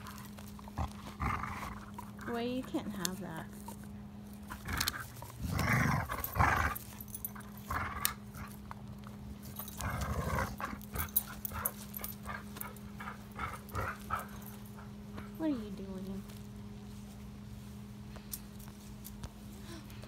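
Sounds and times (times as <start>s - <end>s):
dog growling: 0.0s - 3.2s, 4.4s - 8.6s, 9.6s - 14.9s.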